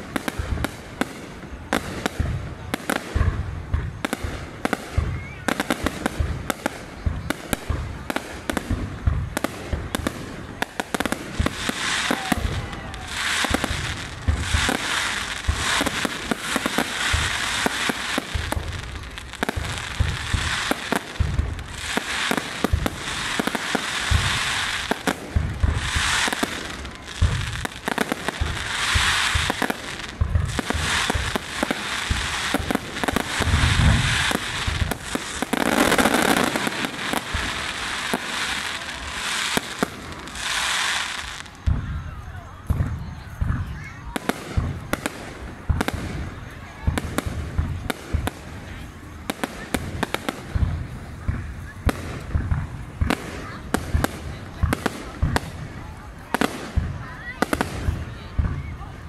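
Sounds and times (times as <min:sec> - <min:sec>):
fireworks bursts and bangs: 0:00.0 - 0:59.0
fireworks crackling: 0:00.0 - 0:59.0.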